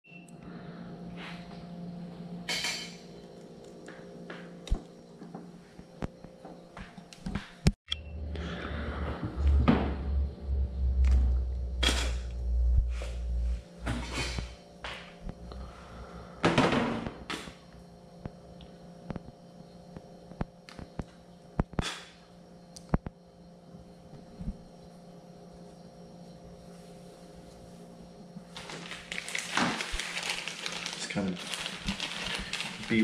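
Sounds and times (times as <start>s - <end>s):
faint steady hum: 0.1s - 7.3s, 7.9s - 33.0s
rustling of wires: 28.4s - 33.0s.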